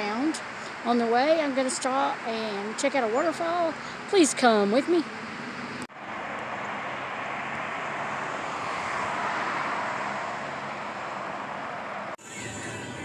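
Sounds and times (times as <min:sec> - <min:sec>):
road traffic noise: 0:00.0 - 0:13.0
vehicle passing by: 0:05.0 - 0:13.0.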